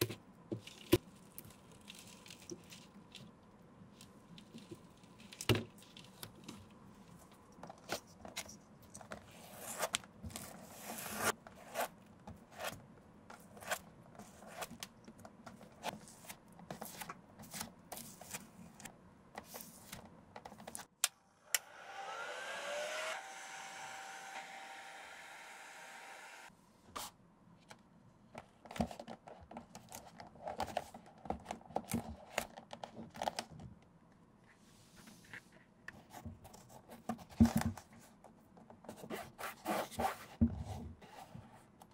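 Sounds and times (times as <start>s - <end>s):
hot-air blower whining: 21.4s - 26.5s.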